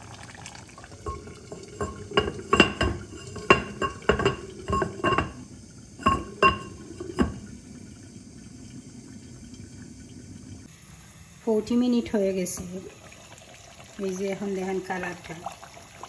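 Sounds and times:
clay lid clinking on pot rim: 1.0s - 7.4s.

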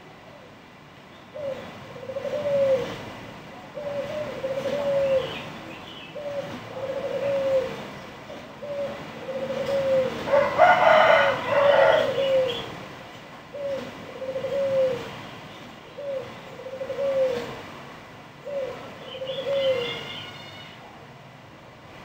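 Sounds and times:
dove cooing: 1.4s - 3.0s, 3.6s - 5.5s, 6.1s - 12.8s, 13.5s - 15.2s, 15.9s - 17.7s, 18.4s - 20.2s
higher bird call: 18.5s - 20.8s.

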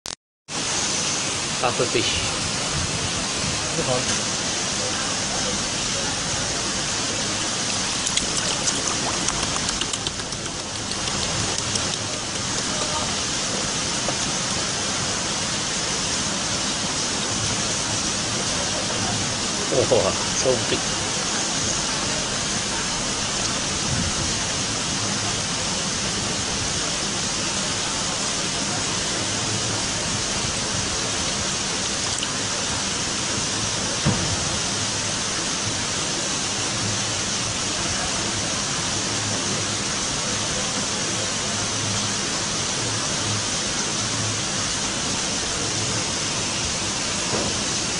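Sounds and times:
steady rushing noise: 0.5s - 32.0s.

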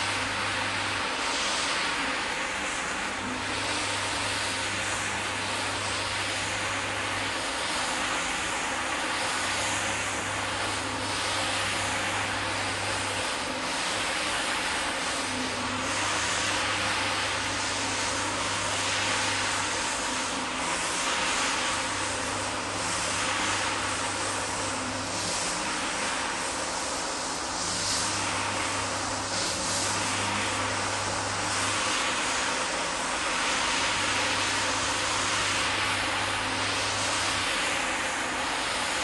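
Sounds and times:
floor scrubber whirring hiss: 0.0s - 39.0s.

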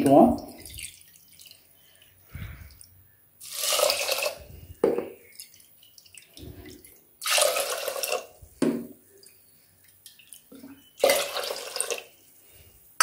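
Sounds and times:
water splashing into a pot: 0.0s - 2.8s, 3.4s - 8.5s, 10.0s - 12.1s.

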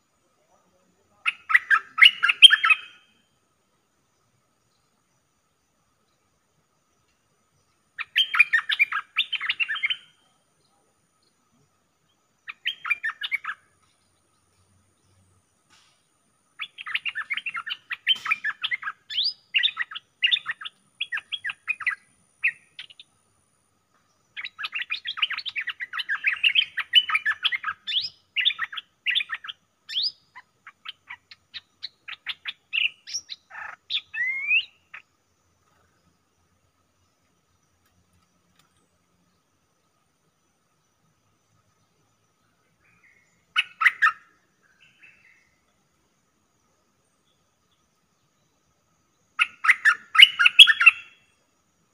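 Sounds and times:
bulbul chattering song: 0.3s - 3.2s, 7.9s - 11.0s, 12.0s - 15.5s, 16.5s - 23.4s, 24.1s - 35.9s, 42.6s - 45.6s, 49.3s - 51.3s.

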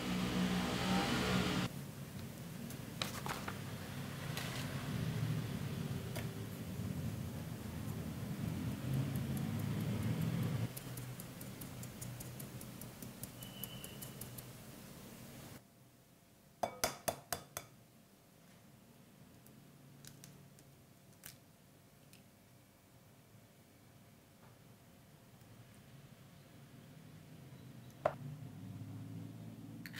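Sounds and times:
eggshell clicks: 8.9s - 14.5s
sieve tapping light ticks: 8.9s - 14.5s.

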